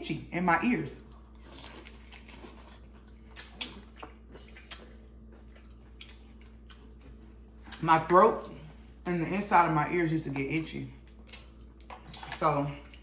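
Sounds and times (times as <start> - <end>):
mouth smacks while eating: 1.5 - 7.0.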